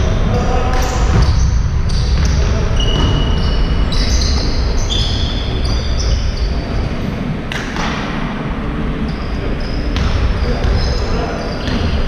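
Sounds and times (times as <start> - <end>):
sneakers squeaking on court: 0.3 - 7.9, 9.1 - 12.0
basketball bouncing: 0.7 - 3.6, 9.9 - 11.0.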